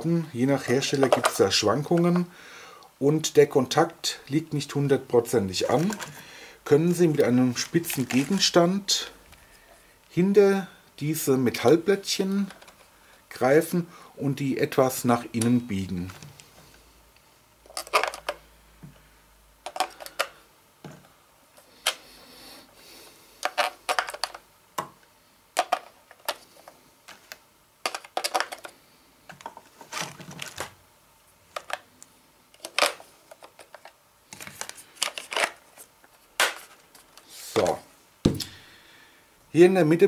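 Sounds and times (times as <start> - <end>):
batteries clicking into plastic case: 19.7 - 20.3, 23.4 - 24.4, 25.6 - 26.4, 27.1 - 28.7.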